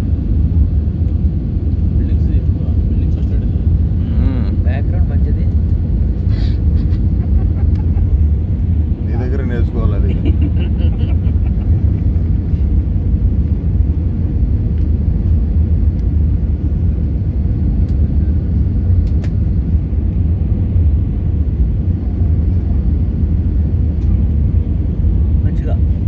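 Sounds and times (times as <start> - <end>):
jet airliner cabin rumble: 0.0 - 26.0.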